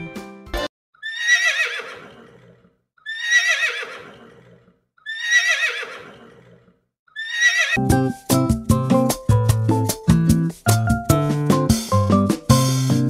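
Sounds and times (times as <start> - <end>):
horse whinnying: 1.0 - 7.8.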